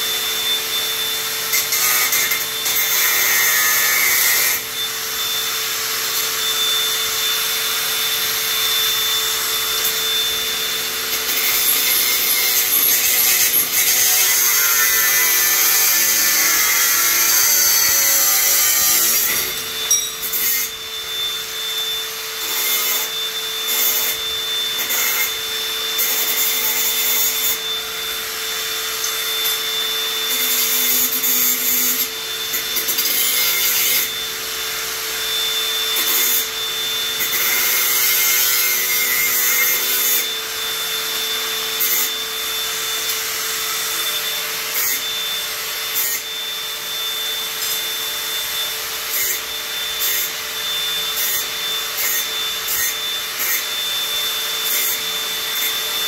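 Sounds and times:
power saw cutting: 0:00.0 - 0:56.0.

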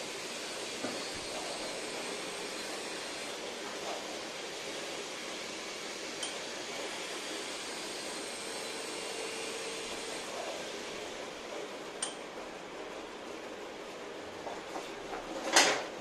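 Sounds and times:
metallic tool click: 0:12.0 - 0:12.2.

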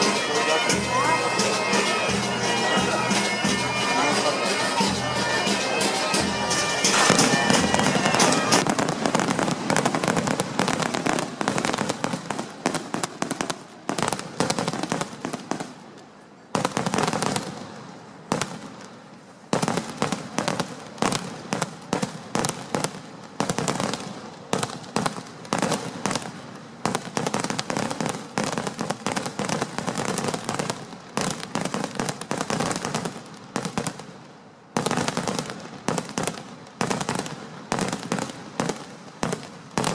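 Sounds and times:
bagpipe music: 0:00.0 - 0:08.7
firecrackers bursting: 0:00.0 - 0:39.9.

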